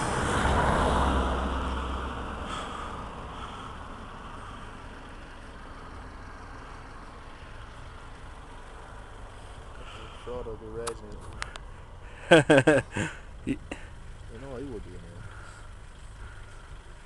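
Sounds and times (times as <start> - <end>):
vehicle passing close by: 0.0 - 10.5.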